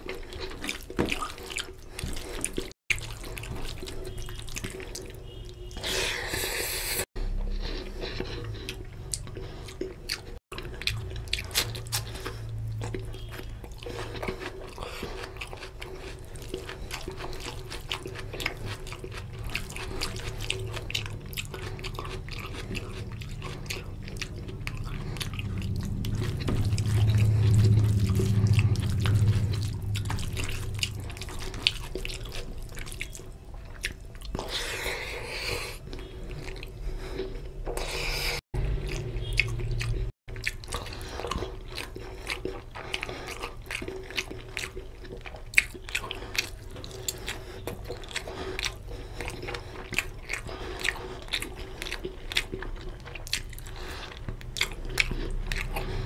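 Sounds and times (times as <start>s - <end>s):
low rumble: 23.9s - 31.8s.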